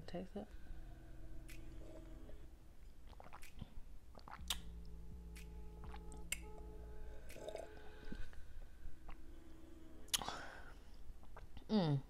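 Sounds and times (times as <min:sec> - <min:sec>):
person sipping and swallowing: 0:03.0 - 0:04.8, 0:07.1 - 0:08.4, 0:10.1 - 0:11.7
wet mouth clicks: 0:03.0 - 0:06.5, 0:07.3 - 0:07.7, 0:10.1 - 0:10.4.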